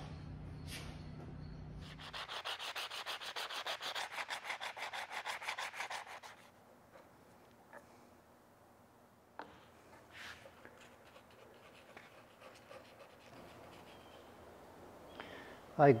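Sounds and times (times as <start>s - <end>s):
sandpaper rubbing on wood: 1.8s - 6.5s, 10.1s - 14.2s.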